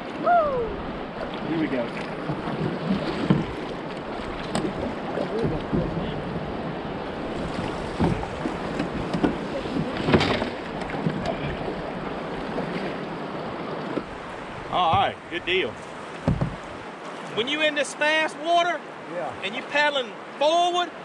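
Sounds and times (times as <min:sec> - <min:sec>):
paddle knocks and splashes: 0:00.8 - 0:17.4.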